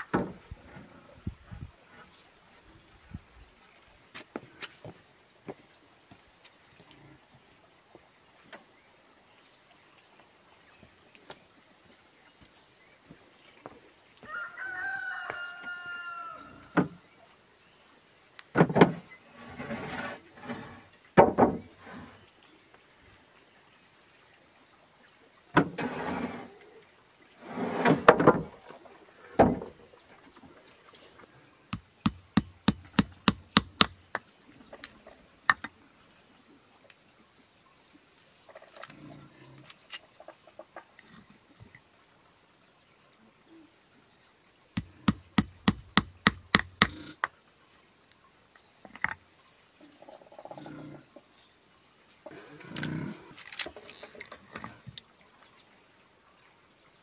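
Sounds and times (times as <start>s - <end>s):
hammer tapping on nails: 31.8s - 34.1s, 44.8s - 47.0s.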